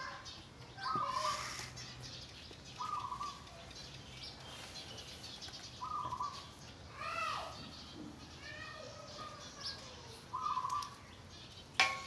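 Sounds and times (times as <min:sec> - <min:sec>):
baby monkey squeaking calls: 0:00.8 - 0:01.7.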